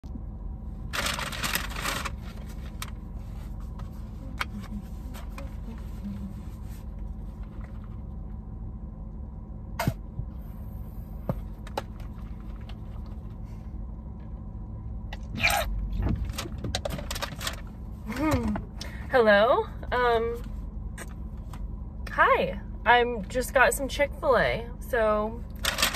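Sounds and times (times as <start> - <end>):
low rumble inside car: 0.0 - 25.9
paper packaging rustling: 0.9 - 3.0, 16.2 - 17.7, 25.6 - 25.9.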